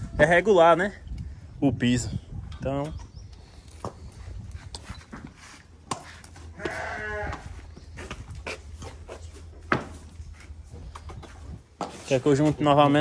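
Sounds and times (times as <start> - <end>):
farm animal bleating: 6.4 - 7.7.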